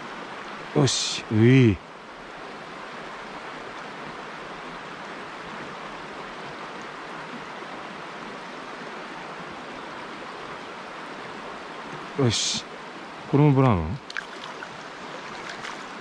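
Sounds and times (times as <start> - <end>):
stream running over rocks: 0.0 - 16.0.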